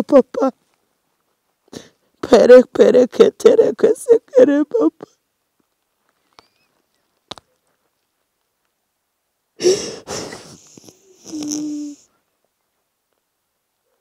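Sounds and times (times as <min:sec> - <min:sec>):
woman exhaling breathily: 0:09.6 - 0:10.7.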